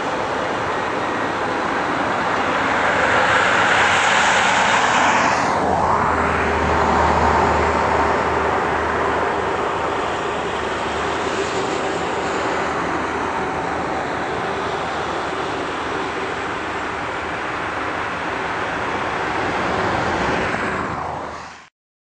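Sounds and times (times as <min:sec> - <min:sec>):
excavator diesel engine working: 0:05.6 - 0:21.2.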